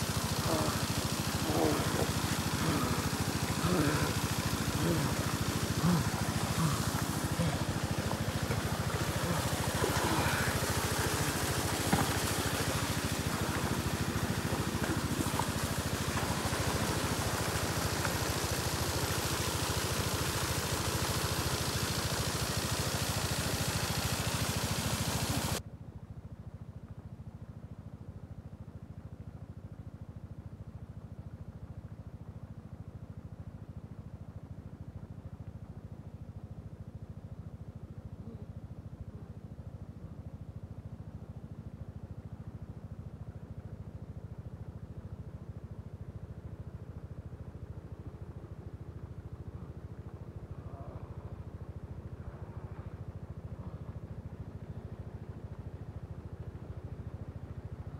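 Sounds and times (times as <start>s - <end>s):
engine drone: 0.0s - 25.6s, 42.2s - 57.9s.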